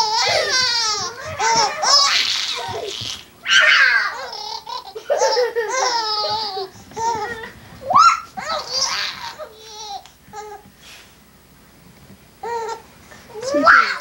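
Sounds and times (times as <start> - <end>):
baby laughing: 0.0 - 10.5.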